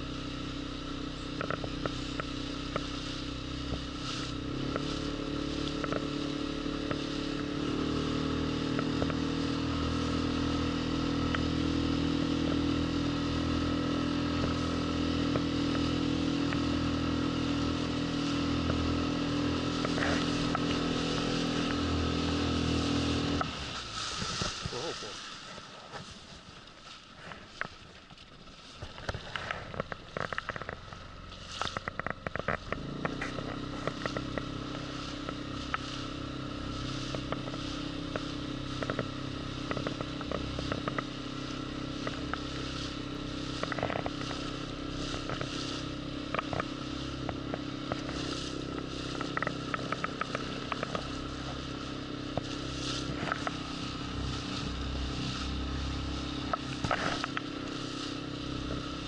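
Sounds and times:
small boat motor humming: 0.0 - 59.0
crackles and scrapes of handling: 19.7 - 59.0.

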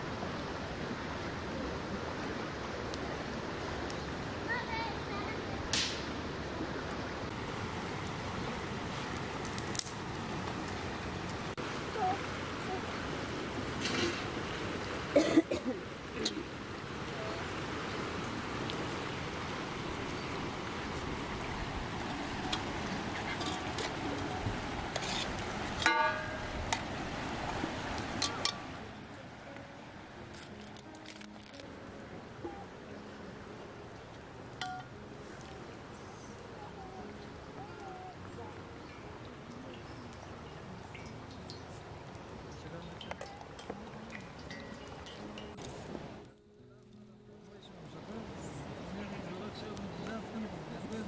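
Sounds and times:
stream rushing: 0.0 - 51.0.

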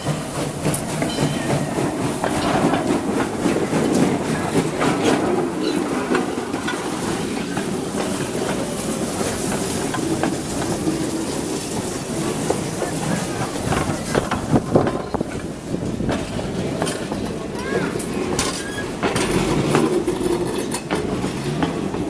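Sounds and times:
steam hissing: 0.0 - 16.8
wheels clicking on rails: 0.0 - 22.0.

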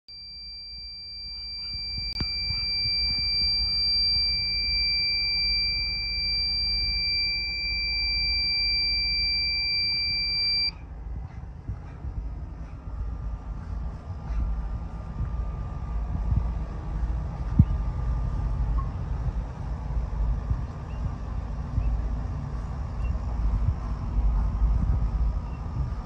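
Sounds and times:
high-pitched alarm tone: 0.1 - 10.7.

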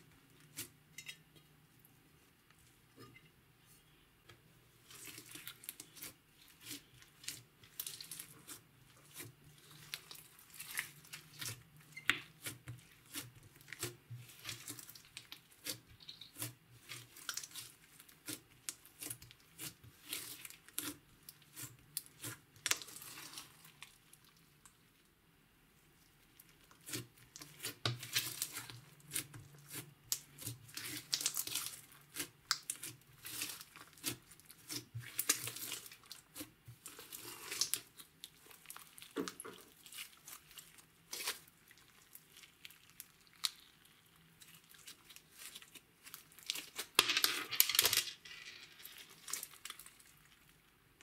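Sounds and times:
slime crackling and popping: 5.0 - 24.0, 26.8 - 47.0.

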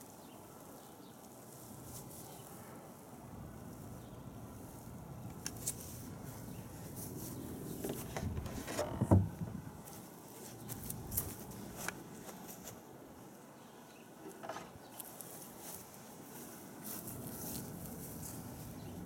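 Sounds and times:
dull thump: 8.2 - 9.6
camera handling rustle: 9.8 - 12.8.

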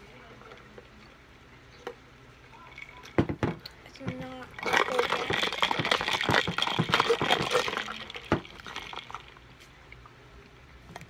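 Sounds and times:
straw stirring ice in cup: 2.5 - 9.4.

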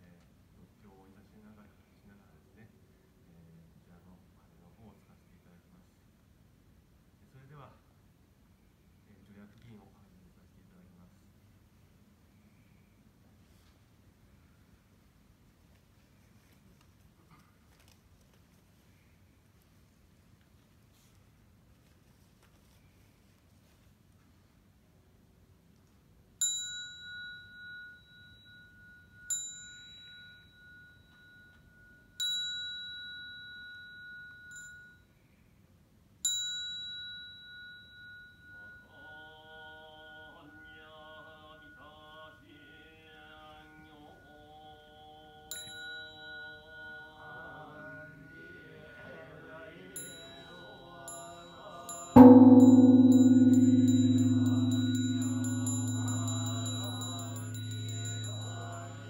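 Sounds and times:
small high-pitched bell ringing: 26.4 - 35.4, 36.2 - 39.3, 45.5 - 47.6, 50.0 - 59.0
monks chanting: 47.3 - 50.9
large bronze temple bell toll: 52.2 - 59.0.

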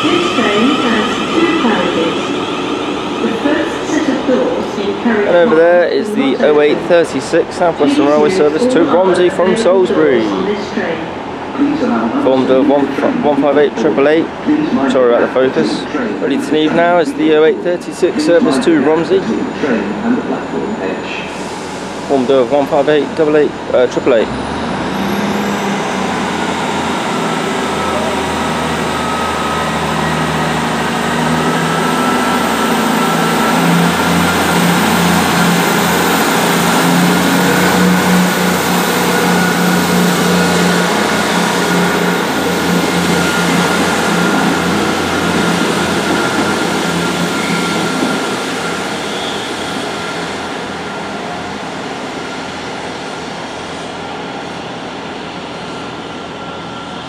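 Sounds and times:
diesel train pulling away: 0.0 - 57.0
steady high whine: 23.9 - 57.0.

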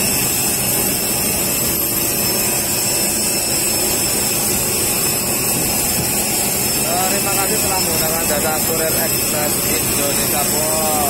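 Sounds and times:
high-pitched whines: 0.0 - 11.0
jet engines running: 0.0 - 11.0.

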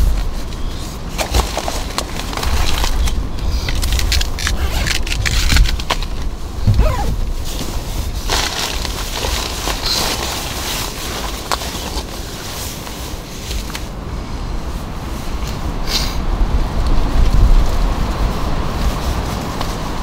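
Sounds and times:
steady low rumble: 0.0 - 11.3
nylon fabric rustling and crinkling: 0.0 - 14.0.

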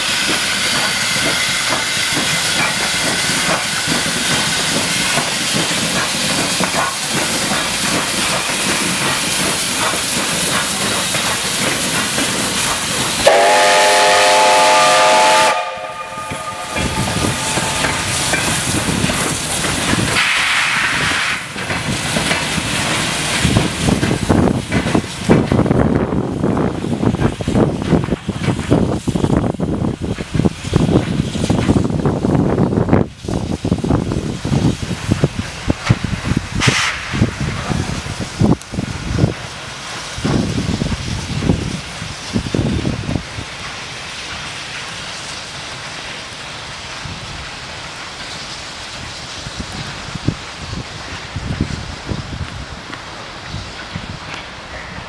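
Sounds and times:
steam locomotive hissing: 0.0 - 55.0
train wheels clattering on rails: 0.0 - 55.0
steam whistle blast: 13.2 - 18.3.

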